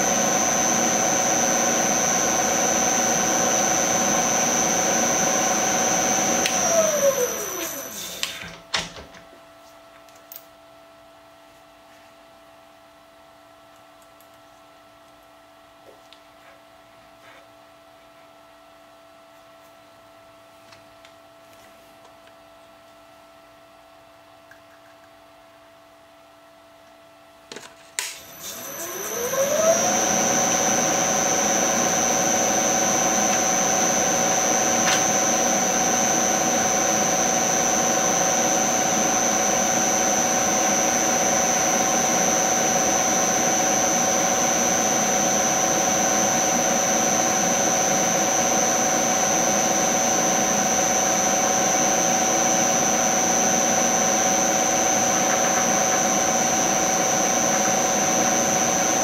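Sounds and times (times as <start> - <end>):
milling machine whine: 0.0 - 8.3, 28.2 - 59.0.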